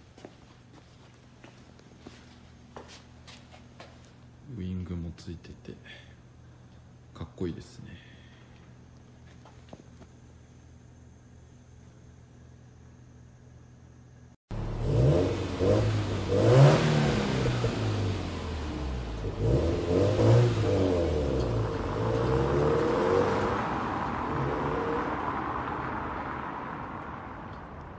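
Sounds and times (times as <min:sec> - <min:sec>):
car engine accelerating: 0:14.5 - 0:27.9.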